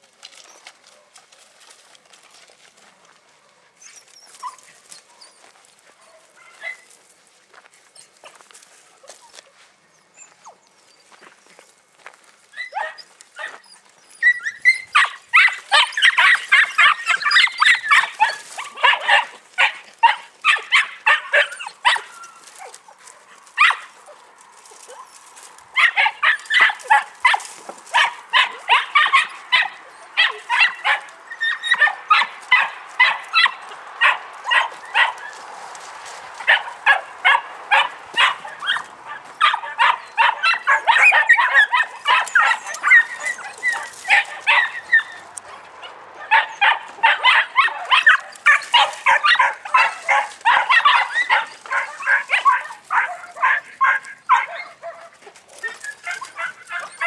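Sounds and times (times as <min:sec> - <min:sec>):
puppies barking in fast yaps: 0:12.6 - 0:13.6, 0:14.2 - 0:57.0.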